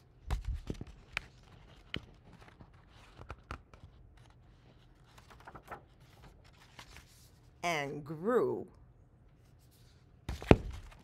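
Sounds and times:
book pages rustling: 0.3 - 7.6.

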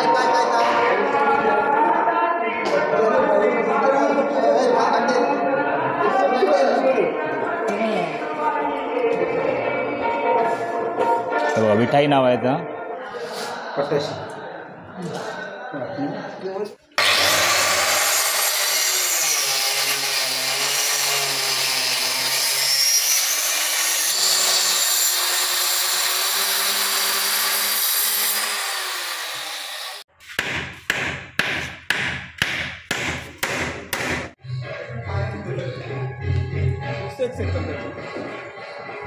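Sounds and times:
electric saw cutting wood: 17.0 - 30.1.

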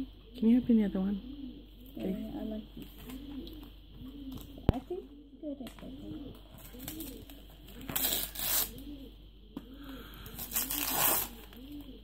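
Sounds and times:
dove cooing: 0.0 - 12.0
wrapping paper tearing: 6.7 - 8.8, 10.4 - 11.7.

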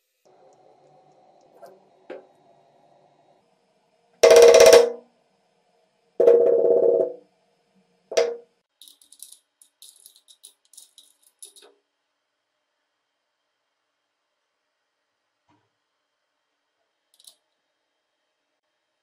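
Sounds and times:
hammer striking wood: 4.2 - 5.0, 8.1 - 8.4.

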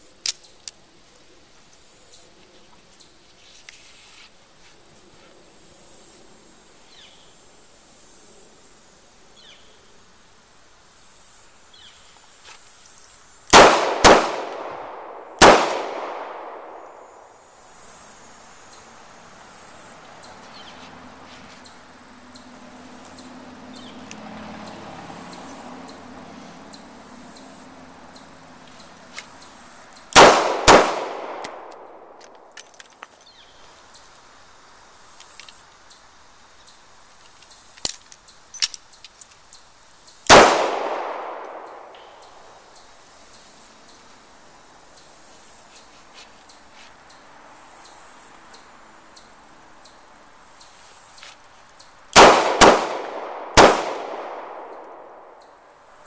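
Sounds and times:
handgun shots: 13.6 - 16.8, 30.2 - 31.9, 52.2 - 55.0.

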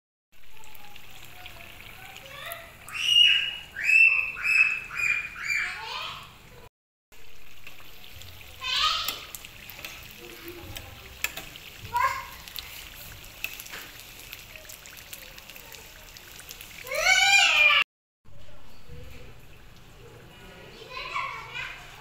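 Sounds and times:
food deep-frying in hot oil: 0.3 - 6.5, 7.1 - 17.8
high-pitched calls: 2.8 - 6.0.

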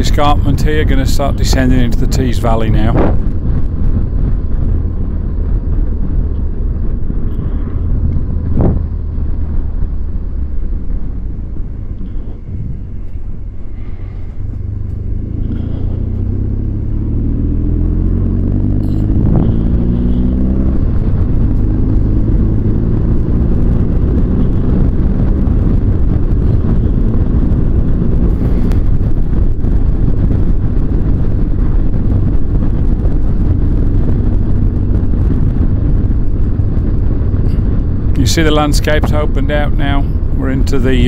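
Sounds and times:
heavy wind: 0.0 - 41.0
motorcycle engine revving: 0.0 - 41.0
road rumble: 0.0 - 41.0.

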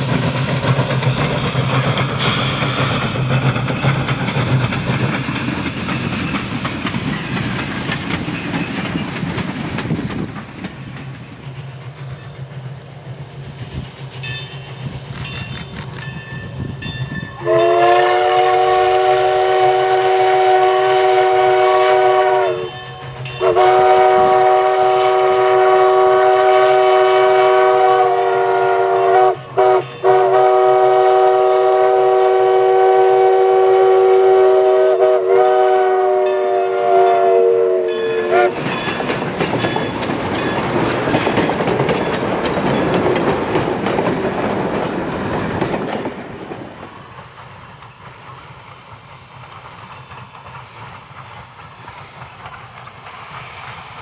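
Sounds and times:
steam locomotive passing: 0.0 - 54.0
steam locomotive chime whistle: 1.1 - 3.1, 14.2 - 40.8.

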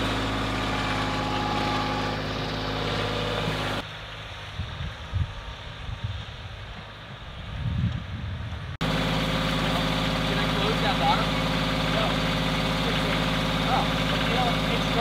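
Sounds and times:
tractor engine running: 0.0 - 4.3, 8.8 - 15.0
wind on microphone: 4.4 - 8.8.

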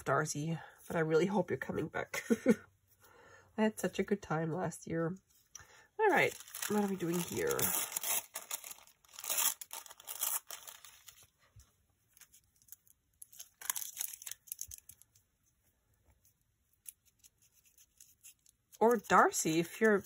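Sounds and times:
paper crinkling and tearing: 6.1 - 11.3, 12.2 - 15.2, 16.8 - 20.0
faint paper handling: 6.1 - 20.0.

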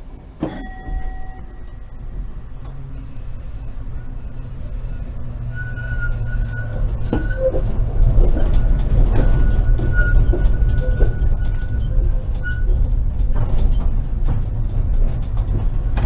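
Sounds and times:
tram rumbling on rails: 0.0 - 16.0
thin high whine: 0.4 - 7.5.

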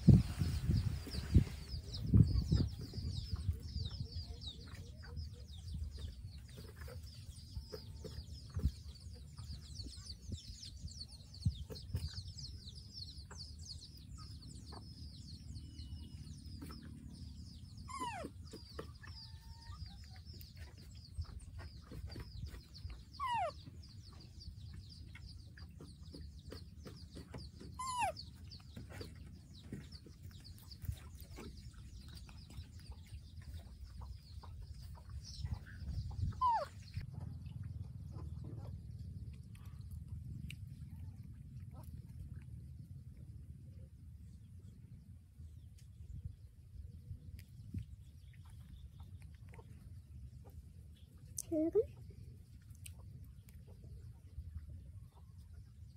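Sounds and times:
baby monkey squealing: 27.8 - 28.2, 36.4 - 36.7
low rumble: 28.4 - 51.2.

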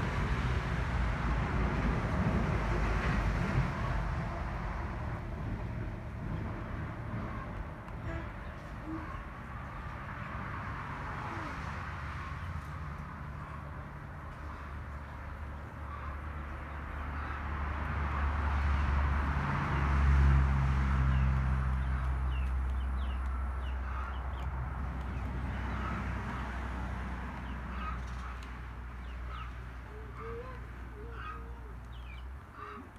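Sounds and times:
small birds chirping: 21.1 - 25.9, 27.4 - 32.9
chickens clucking: 27.4 - 32.9.

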